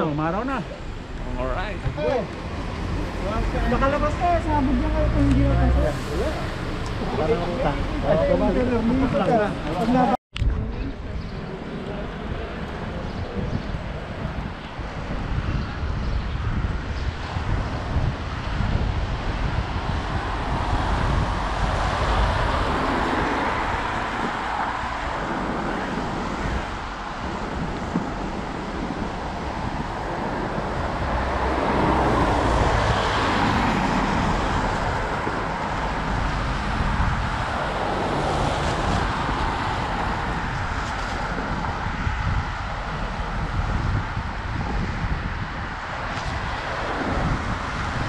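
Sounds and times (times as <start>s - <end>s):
traffic noise: 0.0s - 48.0s
wind: 0.0s - 48.0s
vehicle passing: 0.4s - 9.9s, 27.5s - 44.7s.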